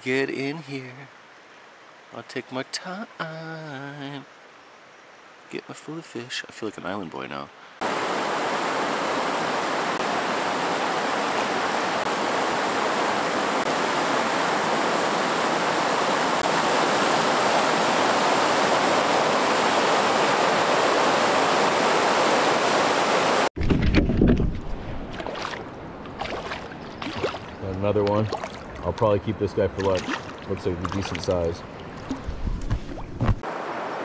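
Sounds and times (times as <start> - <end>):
water rushing over rapids: 7.8 - 23.5, 25.2 - 29.0, 29.7 - 34.0
fish splashing at surface: 25.1 - 27.6, 28.3 - 28.8, 29.8 - 33.2.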